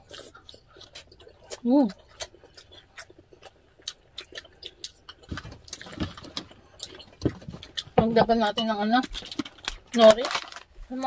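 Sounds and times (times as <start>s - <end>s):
chewing mouth noises: 0.0s - 8.0s.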